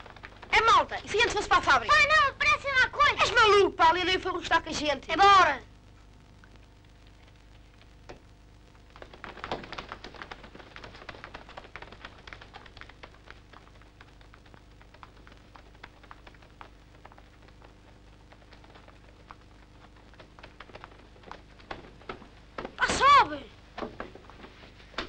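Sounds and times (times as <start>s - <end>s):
faint steady hum: 0.0s - 25.0s
running footsteps on pavement: 9.0s - 25.0s.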